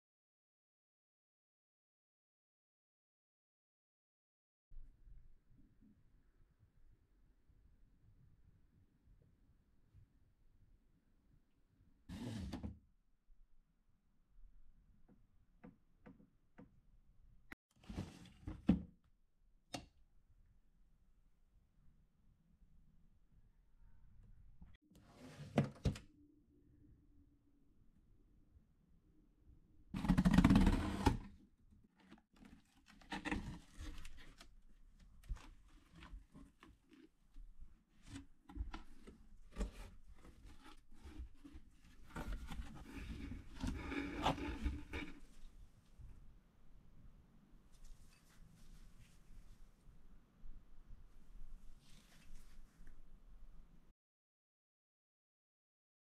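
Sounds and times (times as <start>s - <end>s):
cardboard rustling scrape: 30.0s - 31.3s, 32.4s - 34.5s, 37.9s - 45.5s.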